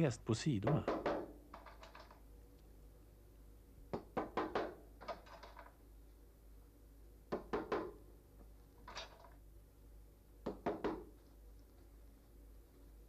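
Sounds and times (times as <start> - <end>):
hammer tapping nails into wood: 0.6 - 1.3.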